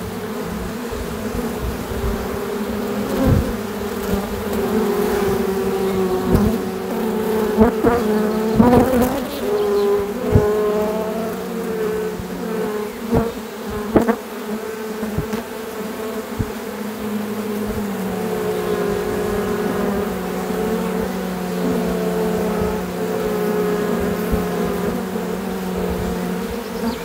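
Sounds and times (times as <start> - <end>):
bees buzzing: 0.0 - 27.0.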